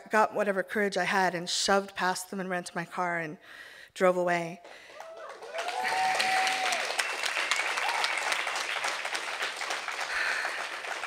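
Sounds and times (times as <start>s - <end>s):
audience applauding: 4.9s - 11.0s
crowd cheering: 4.9s - 11.0s.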